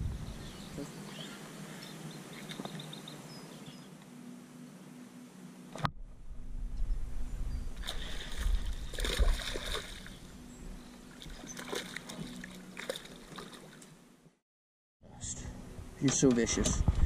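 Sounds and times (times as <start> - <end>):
fish splashing at water surface: 7.8 - 10.1.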